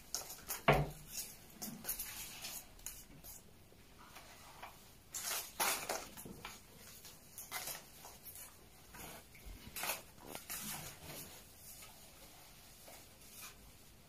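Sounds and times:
paper and plastic rustling: 4.1 - 13.9.

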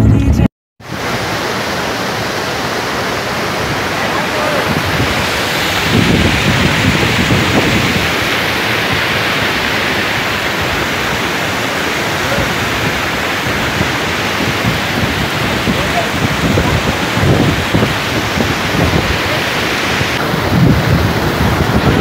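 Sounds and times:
stream rushing over boulders: 0.8 - 22.0
wind buffeting microphone: 0.9 - 22.0.

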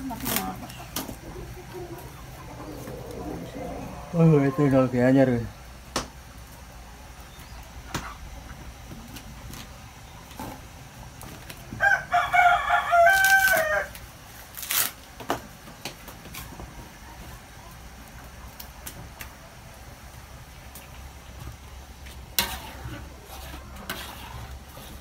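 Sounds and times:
rooster crowing: 11.8 - 14.0.

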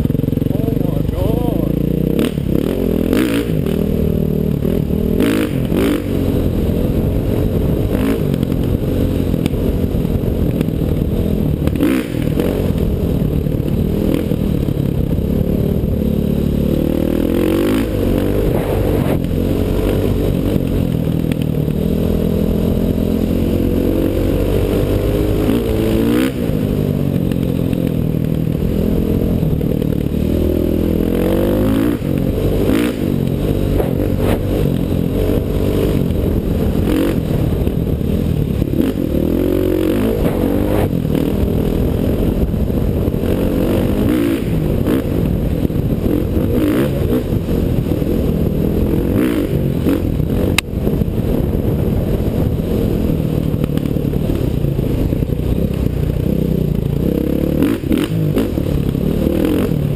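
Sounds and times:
motorcycle engine revving: 0.0 - 59.9
knocks and clatter over rough ground: 33.1 - 35.4.

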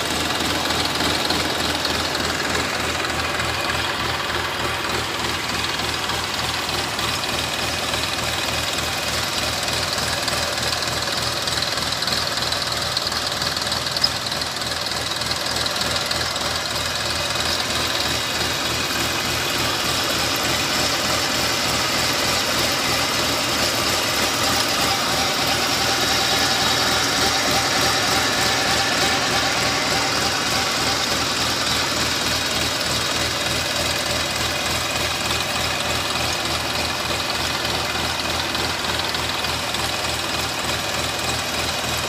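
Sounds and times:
diesel tractor engine running: 0.0 - 42.0.

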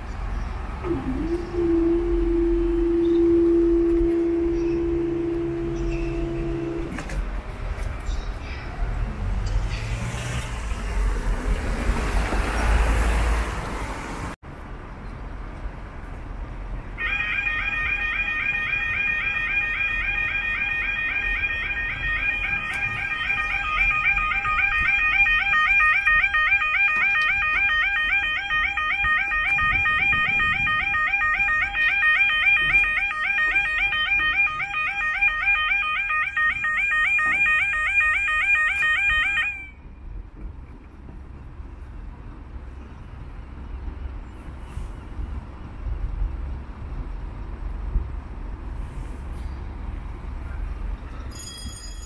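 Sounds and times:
vehicle passing: 4.4 - 14.4
level crossing alarm warbling: 17.0 - 39.8
low wind rumble: 17.6 - 35.4, 39.0 - 52.0.

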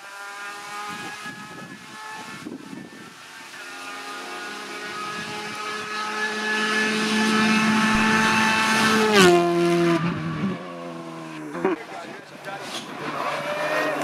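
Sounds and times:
rally car engine passing by: 3.3 - 14.0.

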